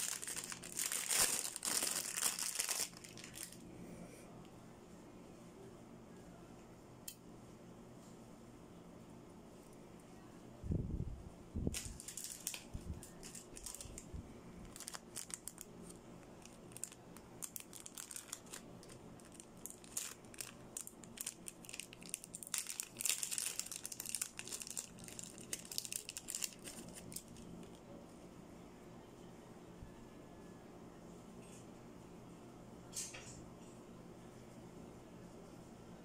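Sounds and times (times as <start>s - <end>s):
plastic packaging crinkling: 0.0s - 3.6s, 11.7s - 27.8s.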